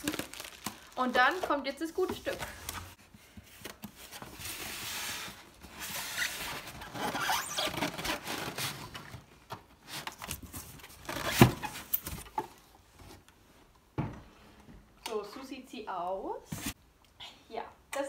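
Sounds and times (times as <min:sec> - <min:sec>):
packaging rustling against cardboard: 0:00.0 - 0:13.2.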